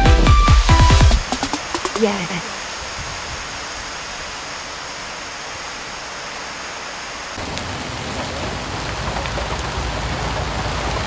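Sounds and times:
heavy rain with low rumble: 0.0s - 11.0s
steady rain hiss: 0.5s - 11.0s.

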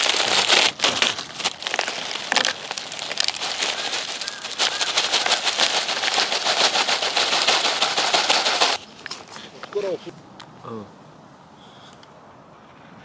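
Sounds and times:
paper packet crinkling: 0.0s - 9.4s.

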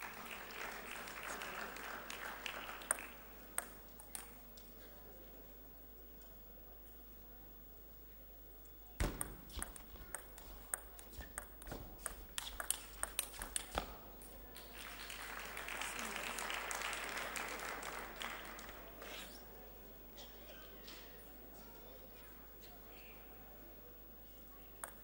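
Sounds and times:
crowd applauding: 0.0s - 3.5s, 14.6s - 19.1s
table tennis ball clicks: 9.0s - 14.0s.

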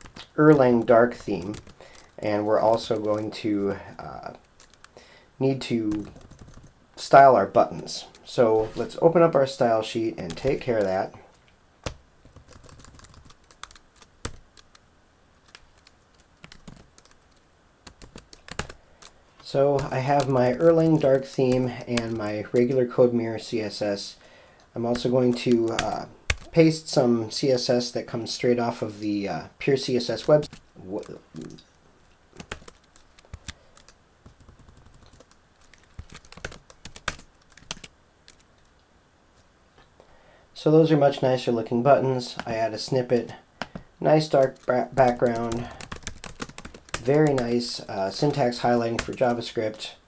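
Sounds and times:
computer keyboard keystrokes: 2.8s - 3.2s, 5.9s - 6.7s, 11.8s - 14.8s, 15.5s - 19.2s, 32.4s - 38.4s, 44.4s - 47.5s.

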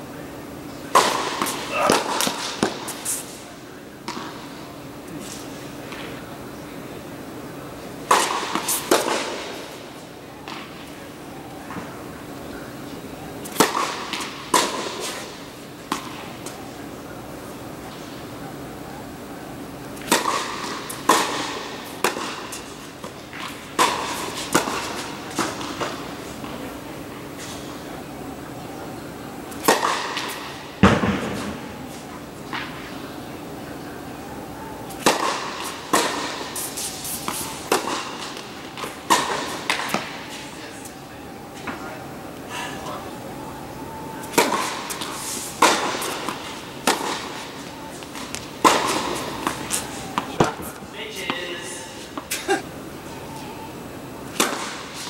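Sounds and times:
tennis ball pops echoing: 13.4s - 15.0s, 20.0s - 22.5s, 29.5s - 31.7s, 34.9s - 36.4s, 37.2s - 40.2s, 44.2s - 47.4s, 54.3s - 54.8s
tennis ball pops: 44.3s - 47.3s.

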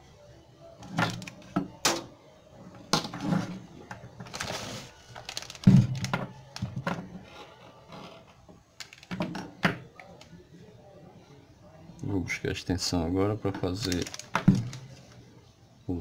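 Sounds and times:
plastic rustle: 4.2s - 6.8s, 13.6s - 15.2s.

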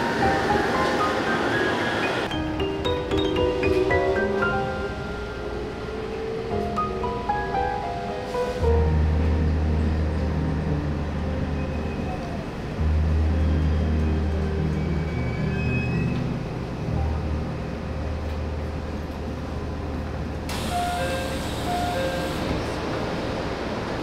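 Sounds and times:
train running: 0.0s - 24.0s.

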